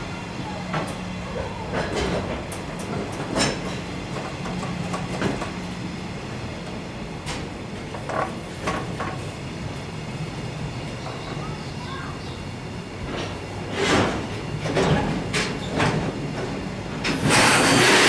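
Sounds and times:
freight train rumbling past: 0.0s - 18.0s
wheels clacking over rail joints: 0.1s - 5.8s, 6.5s - 9.5s, 13.0s - 18.0s.

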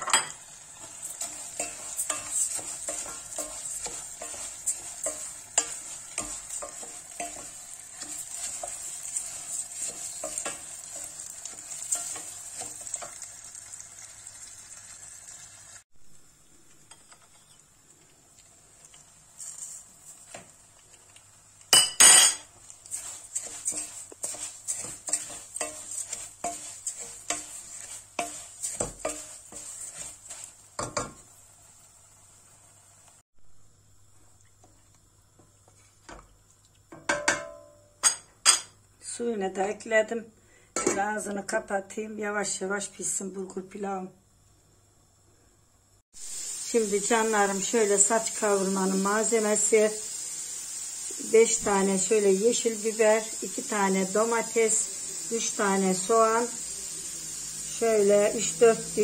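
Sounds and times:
grain sizzling in a pot: 0.0s - 59.0s
wooden spoon scraping a pot: 0.8s - 13.2s, 22.4s - 31.2s.

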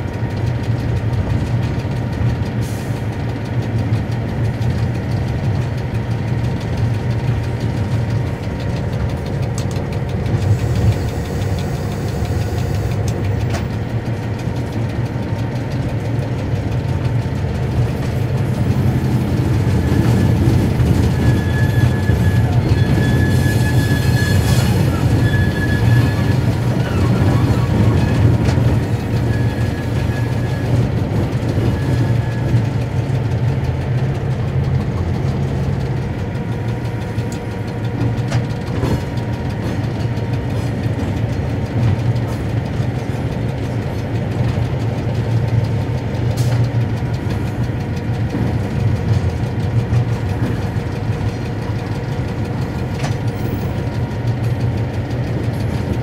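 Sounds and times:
diesel engine droning: 0.0s - 56.0s
wheel clicks over rail joints: 0.0s - 56.0s
high wheel squeal: 17.8s - 33.0s.

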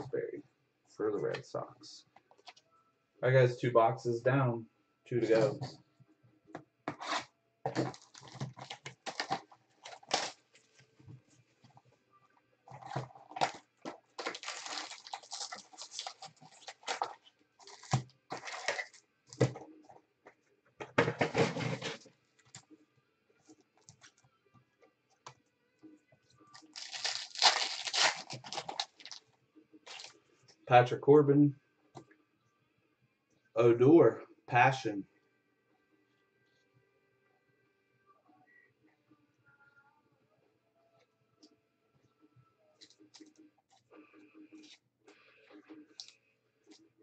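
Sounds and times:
packaging rustling and crinkling: 7.0s - 10.8s, 12.8s - 19.5s, 26.6s - 29.2s, 29.9s - 30.1s.

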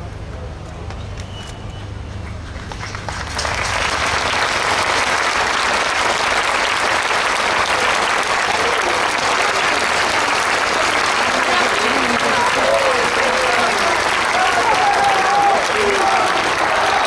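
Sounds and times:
crowd applause: 2.1s - 17.0s.

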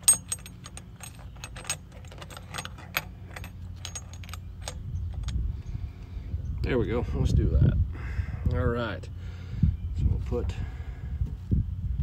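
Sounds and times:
metal tool clicks and clinks: 0.0s - 5.4s.

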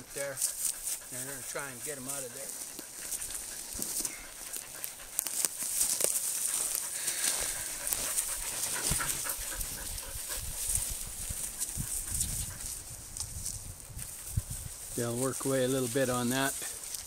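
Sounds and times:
dog panting: 0.0s - 13.1s
footsteps in dry grass: 0.0s - 17.0s.

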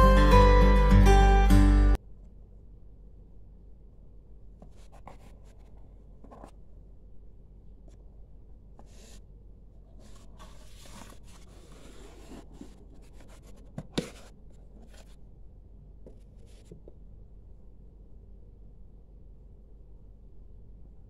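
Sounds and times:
cardboard box scraping and rustling: 9.9s - 15.2s.

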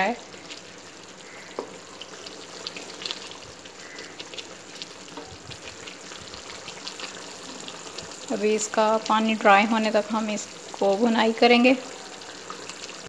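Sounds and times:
paste sizzling in oil: 0.0s - 13.0s
small pops and crackles: 0.4s - 8.3s.

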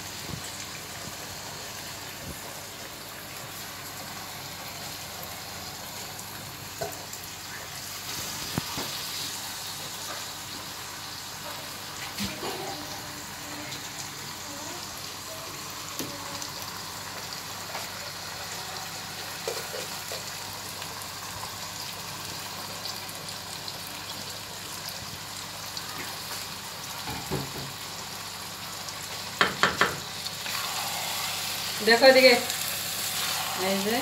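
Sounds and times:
food sizzling in a pan: 0.0s - 34.0s
wooden spoon knocking on pan: 29.4s - 30.1s.

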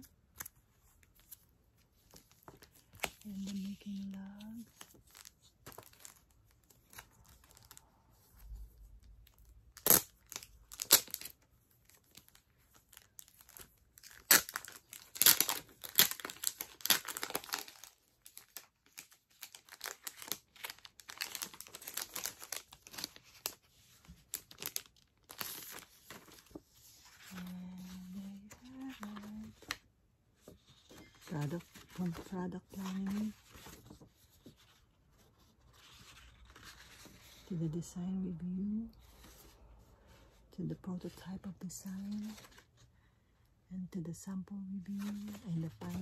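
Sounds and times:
plastic packaging crinkling: 2.1s - 7.9s, 9.4s - 23.6s, 24.2s - 26.6s
plastic tearing: 9.7s - 11.4s, 12.9s - 23.6s.

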